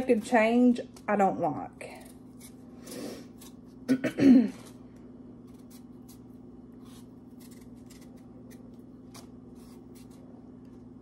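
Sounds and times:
faint steady hum: 0.0s - 11.0s
knife peeling potato: 1.8s - 3.9s, 5.4s - 10.5s
woman clearing throat: 3.9s - 4.6s.

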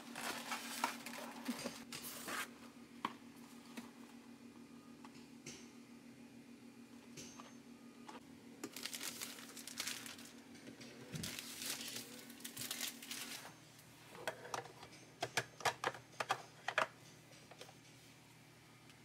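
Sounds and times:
cardboard packaging rustling: 0.0s - 2.6s, 8.7s - 10.4s, 11.1s - 13.5s.

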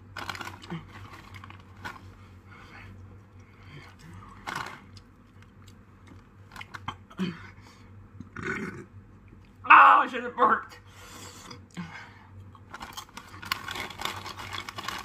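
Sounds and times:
chips crunching: 0.0s - 2.2s, 3.4s - 7.0s, 12.5s - 15.0s.

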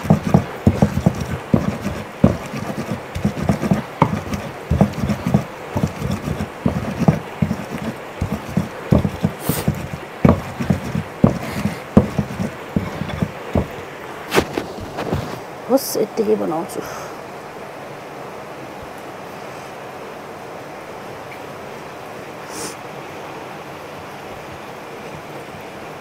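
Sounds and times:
stone grinding on stone: 0.0s - 13.8s.

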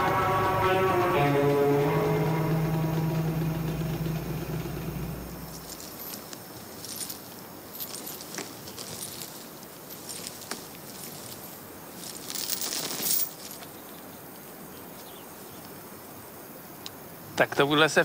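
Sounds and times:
iron chain clinking: 4.8s - 13.6s.

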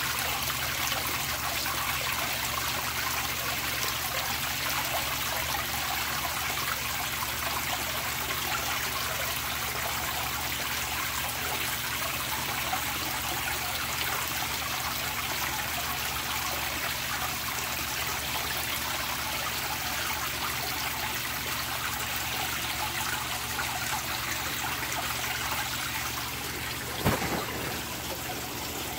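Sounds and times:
water pouring and splashing: 0.0s - 28.9s.

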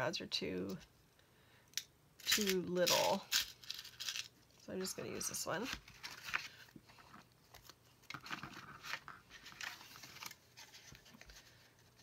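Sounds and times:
paper rustling: 4.8s - 12.0s.

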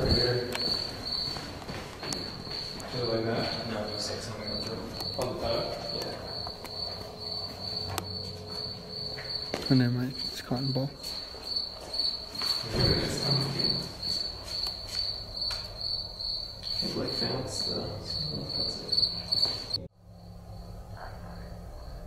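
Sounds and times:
cricket chirping: 0.0s - 22.0s
low hum: 17.9s - 22.0s.

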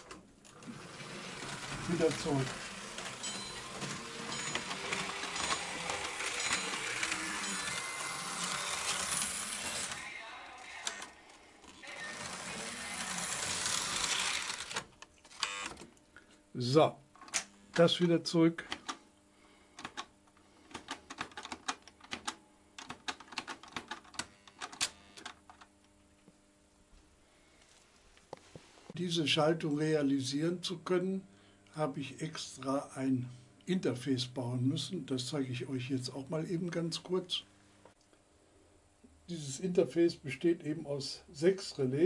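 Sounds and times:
model train motor whirring: 0.5s - 10.0s, 11.8s - 15.7s
faint steady hum: 13.1s - 42.0s.

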